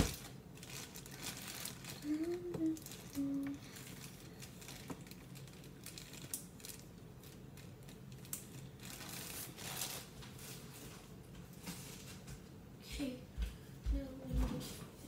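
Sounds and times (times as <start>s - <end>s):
packaging clicks and crinkling: 0.0s - 11.0s
packaging rustle: 0.0s - 12.2s
low steady hum: 0.0s - 15.0s.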